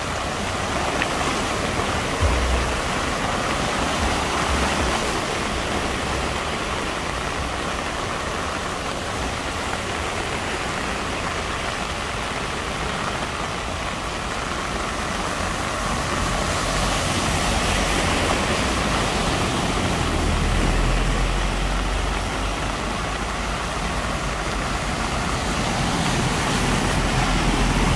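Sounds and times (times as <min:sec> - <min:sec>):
heavy rain: 0:00.0 - 0:27.9
wheels splashing through floodwater: 0:00.0 - 0:27.9
low engine rumble: 0:02.2 - 0:07.0.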